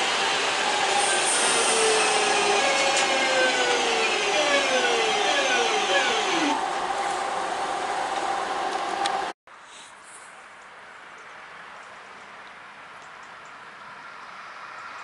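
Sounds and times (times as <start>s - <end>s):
passenger train passing: 0.0s - 9.3s
whining tones falling in pitch: 0.3s - 6.8s.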